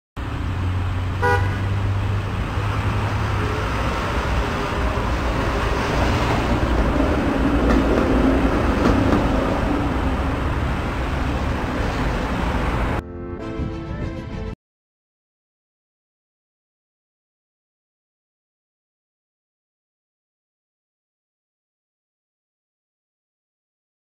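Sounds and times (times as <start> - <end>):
car engines and road noise: 0.2 - 13.7
car horn toot: 1.2 - 1.7.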